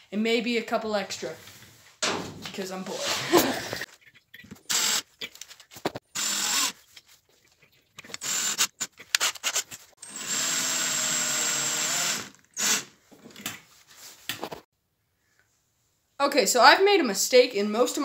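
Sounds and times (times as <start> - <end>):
cordless drill running: 4.7 - 5.0, 6.1 - 6.8, 8.2 - 12.9.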